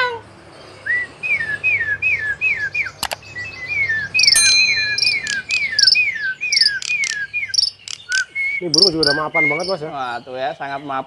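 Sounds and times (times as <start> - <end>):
songbird whistling: 0.7 - 10.6
sharp click: 3.0 - 3.2.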